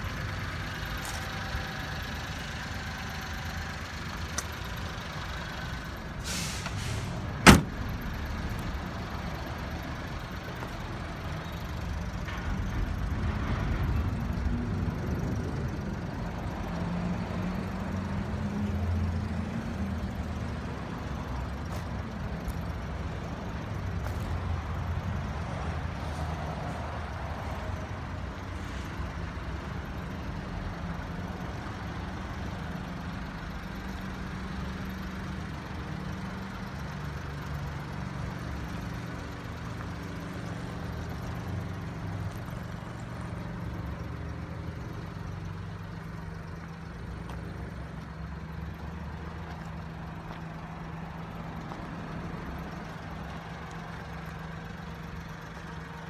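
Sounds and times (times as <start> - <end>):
small truck engine idling: 0.0 - 56.0
door slammed shut: 7.4 - 7.8.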